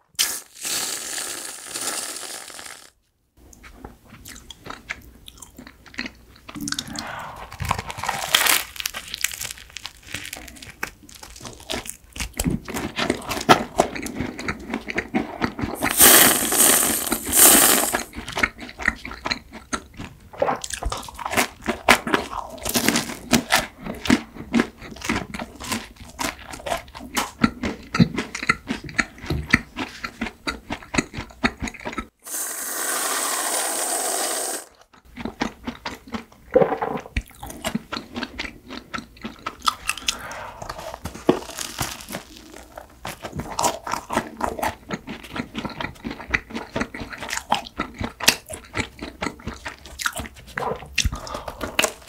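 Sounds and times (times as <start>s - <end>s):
crunchy chewing of bread: 3.6s - 7.0s, 7.6s - 16.0s, 17.9s - 32.2s, 34.7s - 52.0s
whipped cream can spraying: 32.2s - 34.7s.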